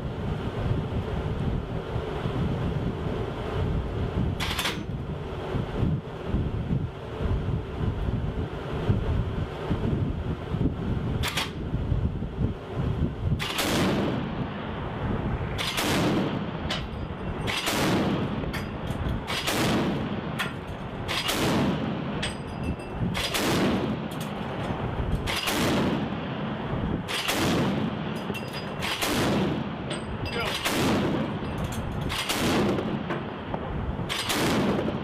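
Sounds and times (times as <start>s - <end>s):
wind rumble on microphone: 0.0s - 35.0s
chain gun firing with echo: 4.4s - 4.9s, 11.2s - 11.6s, 13.4s - 14.2s, 15.6s - 22.4s, 23.1s - 24.4s, 25.2s - 26.1s, 27.0s - 33.2s, 34.1s - 35.0s.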